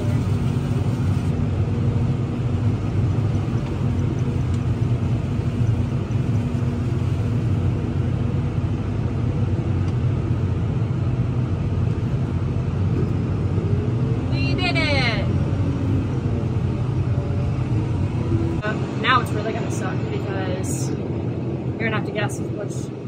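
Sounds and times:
low hums: 0:00.0 - 0:23.0
low machinery rumble: 0:00.0 - 0:23.0.

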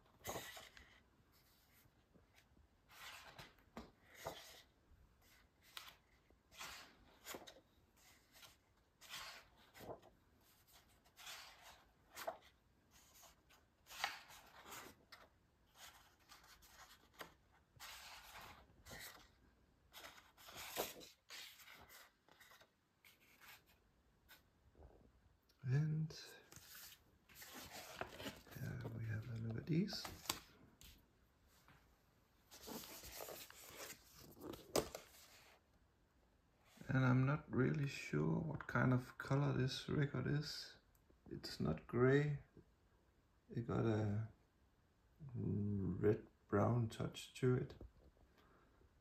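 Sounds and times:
pages turning: 0:00.0 - 0:24.4, 0:26.4 - 0:31.0, 0:32.5 - 0:35.6.

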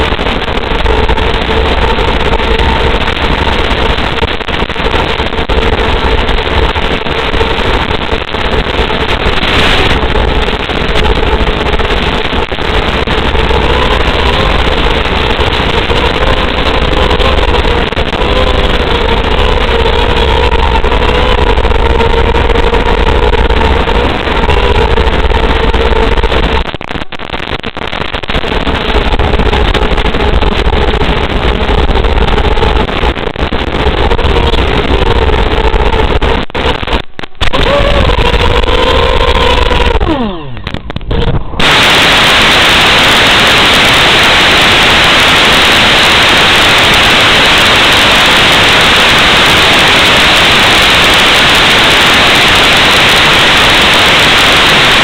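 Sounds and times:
heavy rushing noise: 0:00.0 - 0:55.0
quadcopter motors whining: 0:08.8 - 0:26.6, 0:37.5 - 0:40.6.

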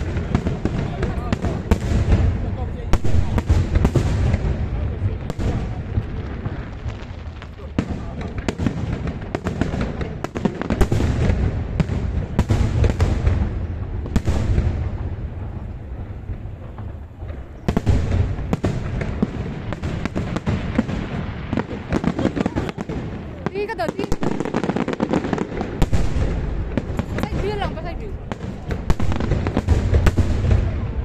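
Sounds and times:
fireworks bangs and pops: 0:00.0 - 0:31.0.

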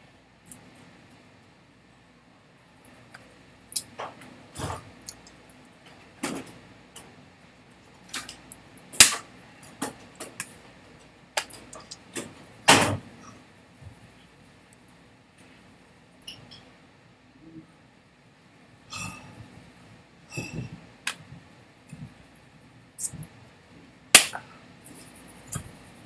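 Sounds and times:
hands slapping together: 0:24.2 - 0:24.4.

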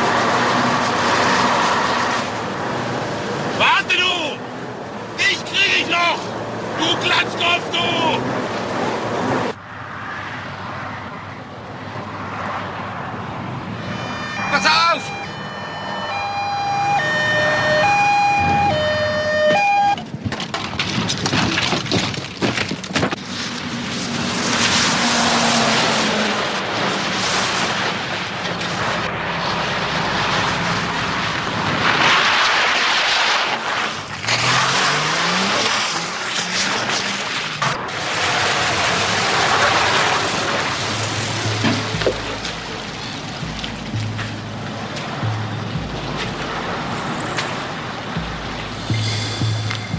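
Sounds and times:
water spray from tyres: 0:00.0 - 0:02.6, 0:23.2 - 0:45.2, 0:46.1 - 0:49.9
diesel truck engine revving: 0:00.0 - 0:09.6, 0:23.7 - 0:49.9
two-tone siren: 0:13.8 - 0:20.1.

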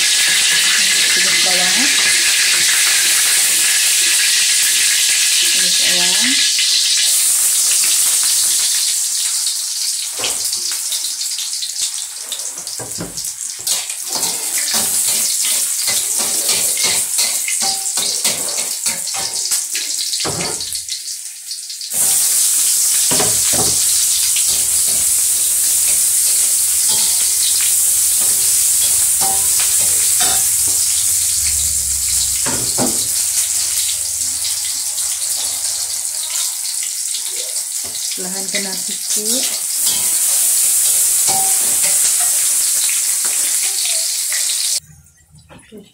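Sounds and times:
onion and garlic sizzling in oil: 0:00.0 - 0:44.8
metal spatula scraping wok: 0:22.0 - 0:36.9.

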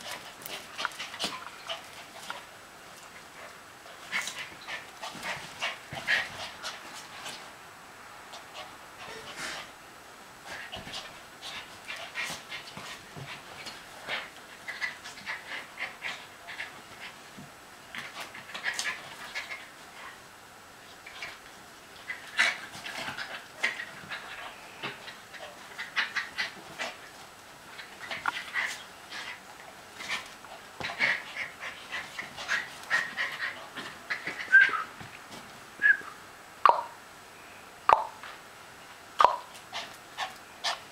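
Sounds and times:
dogs play-wrestling noises: 0:00.0 - 0:09.8, 0:10.4 - 0:35.8, 0:39.1 - 0:40.9
dogs whining and squeaking: 0:32.1 - 0:35.0.

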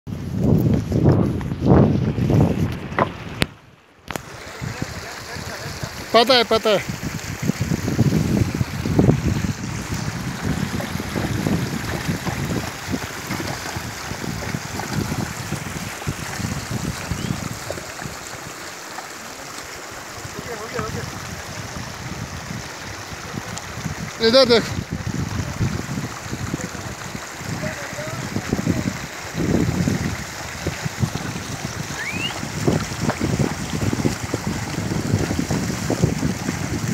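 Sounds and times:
wind buffeting microphone: 0:00.1 - 0:06.2, 0:06.8 - 0:18.6, 0:19.9 - 0:36.9
stream flowing: 0:00.2 - 0:36.9
hooves splashing in water: 0:04.1 - 0:36.9
short rising whistle: 0:32.0 - 0:32.4.

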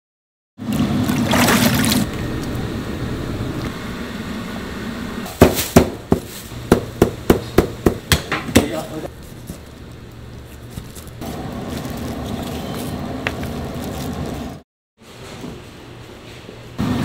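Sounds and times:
liquid splashing and running: 0:00.6 - 0:02.2.

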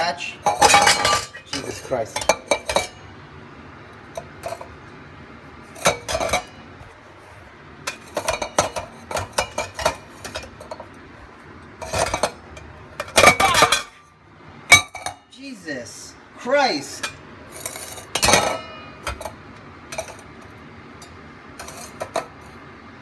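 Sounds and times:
metal parts clinking and knocking: 0:00.5 - 0:03.0.

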